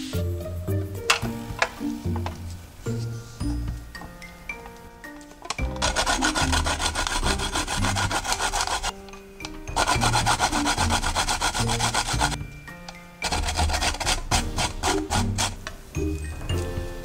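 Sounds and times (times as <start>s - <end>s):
soft background music: 0.0s - 17.0s
garlic grated on grating plate: 5.6s - 8.9s, 9.8s - 12.4s, 13.2s - 15.6s.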